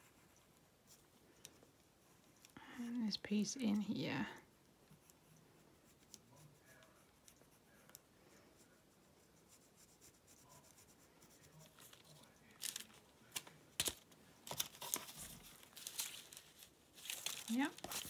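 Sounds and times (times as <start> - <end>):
pencil scratching on paper: 0.0 - 12.5
tracing paper crackling: 11.5 - 18.0.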